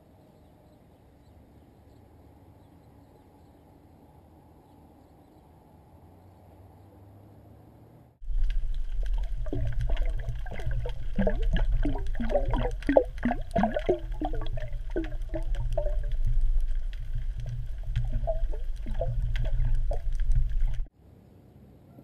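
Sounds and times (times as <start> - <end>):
gurgling bubbles: 8.2 - 20.9
underwater clicks: 8.2 - 20.9
underwater rumble of moving water: 8.2 - 20.9.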